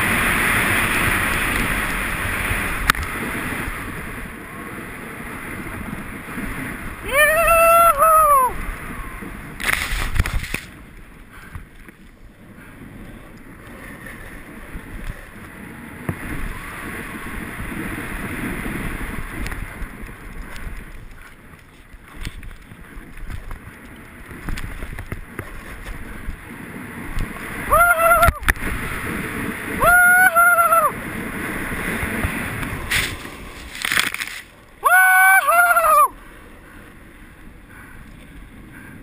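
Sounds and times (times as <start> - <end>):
wind on microphone: 0.0 - 36.2
small clicks and scrapes: 9.6 - 10.8, 19.4 - 26.0, 32.6 - 34.6.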